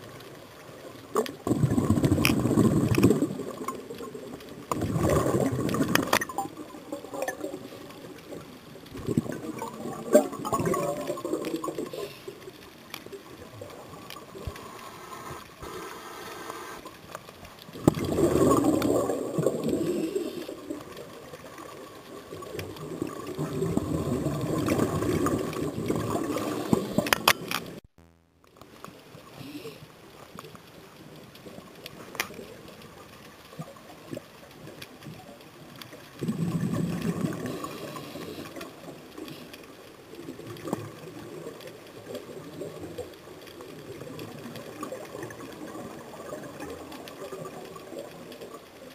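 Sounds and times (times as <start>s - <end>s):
exhaled bubbles underwater: 0.6s - 12.5s, 17.7s - 27.8s, 35.9s - 39.4s, 40.0s - 48.9s
regulator hiss: 14.6s - 16.9s.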